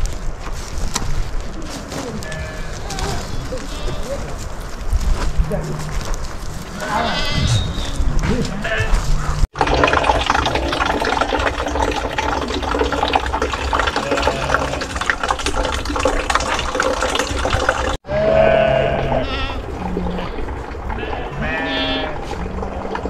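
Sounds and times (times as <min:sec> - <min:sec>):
sheep bleating: 0:08.5 - 0:09.1, 0:18.1 - 0:19.6, 0:21.0 - 0:22.2
water running and splashing: 0:09.4 - 0:18.0, 0:19.5 - 0:23.0.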